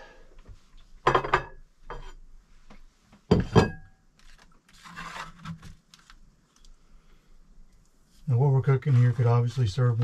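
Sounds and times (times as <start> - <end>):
dishes clinking: 1.0 - 2.2, 3.3 - 4.0
spoon scraping foil pan: 4.7 - 5.7.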